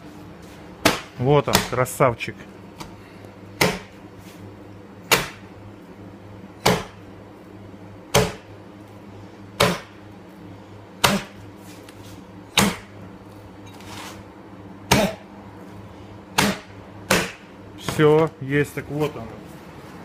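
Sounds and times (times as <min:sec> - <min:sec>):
steady low hum: 0:00.0 - 0:20.0
axe chopping through bone: 0:00.8 - 0:01.8, 0:03.6 - 0:04.0, 0:05.1 - 0:05.4, 0:06.6 - 0:07.0, 0:08.1 - 0:08.5, 0:09.6 - 0:10.0, 0:11.0 - 0:11.4, 0:12.6 - 0:12.9, 0:14.9 - 0:15.2, 0:16.4 - 0:17.4.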